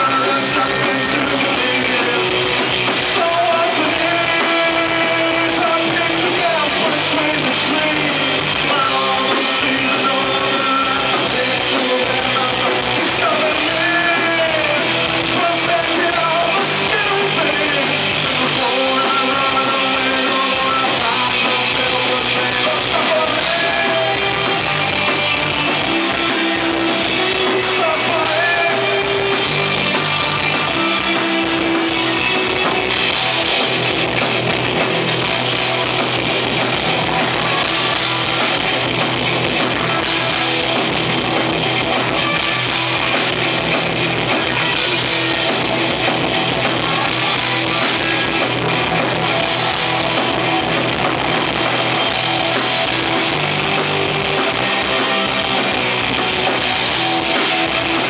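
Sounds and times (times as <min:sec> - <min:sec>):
male singer: 0:00.0 - 0:24.8, 0:25.9 - 0:32.7
live rock band playing: 0:00.0 - 0:58.0.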